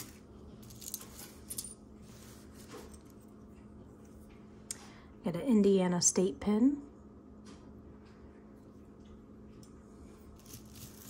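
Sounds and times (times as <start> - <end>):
metal jewelry clinking: 0.0 - 3.3, 10.4 - 11.0
faint steady hum: 0.0 - 11.0.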